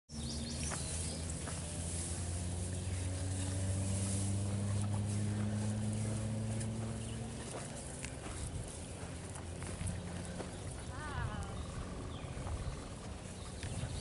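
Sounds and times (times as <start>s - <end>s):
engine running steadily: 0.1s - 14.0s
rustles: 0.1s - 14.0s.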